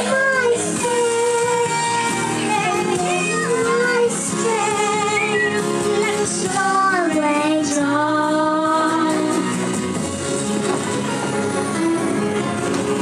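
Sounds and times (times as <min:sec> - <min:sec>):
girl singing into microphone: 0:00.0 - 0:09.6
recorded song with woman singing: 0:00.0 - 0:09.8.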